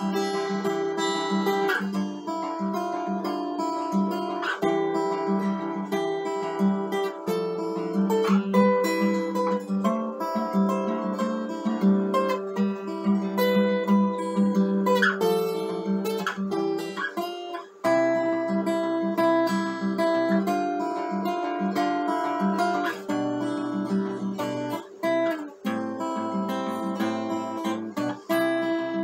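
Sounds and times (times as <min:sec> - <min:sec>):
acoustic guitar playing: 0:00.0 - 0:29.0.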